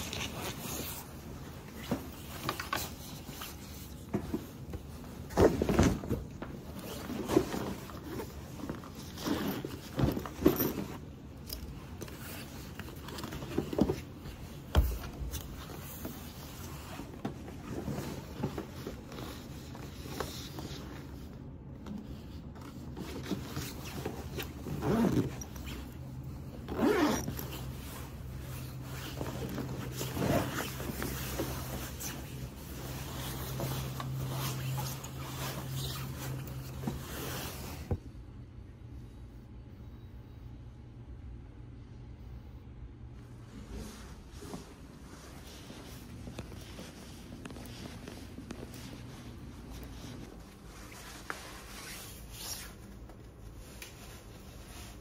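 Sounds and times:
jacket fabric rustling: 0.0 - 38.2, 43.0 - 55.0
zippers being pulled: 23.2 - 37.9.

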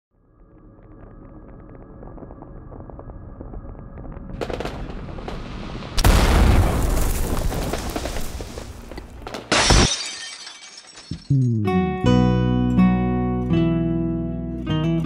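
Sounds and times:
building rumble: 0.2 - 8.1
boom: 3.4 - 8.8
glass shattering: 9.5 - 11.6.

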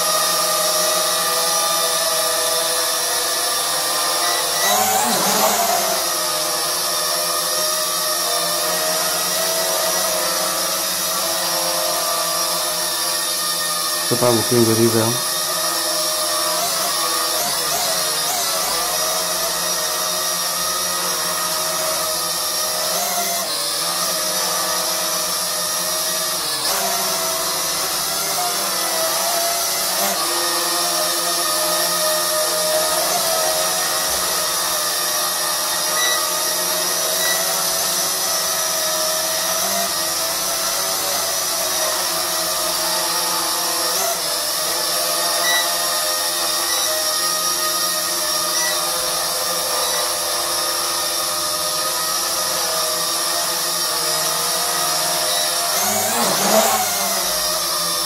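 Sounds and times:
toy drone propellers whining: 0.0 - 58.0.

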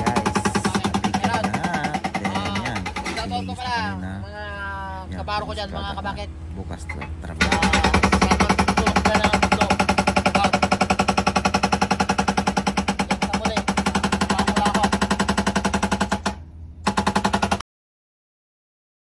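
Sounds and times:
hydraulic breaker pounding concrete: 0.0 - 3.4, 7.4 - 17.6
diesel engine running: 0.0 - 17.5.

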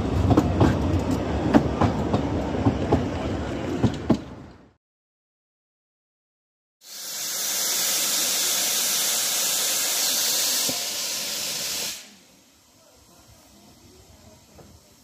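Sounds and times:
steam locomotive venting steam: 6.8 - 15.0.

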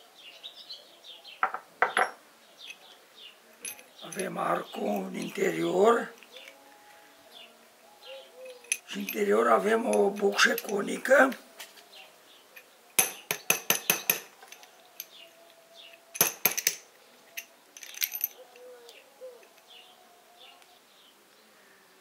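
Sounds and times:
metal parts clinking and clicking: 1.8 - 6.6, 8.4 - 11.4, 12.6 - 18.7.

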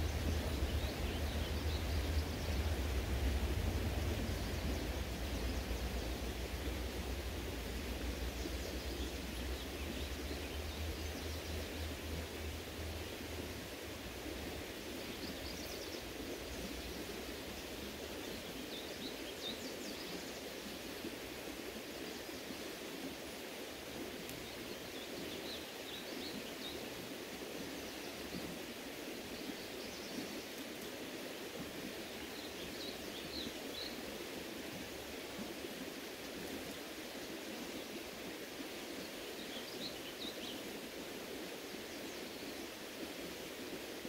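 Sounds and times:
small birds chirping: 0.0 - 20.5
creek water running: 0.0 - 44.0.

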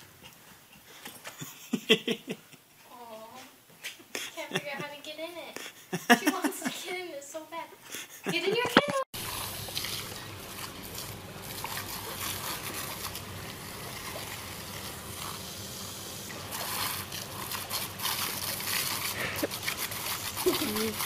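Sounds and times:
water jet spraying from hose: 9.2 - 21.0.

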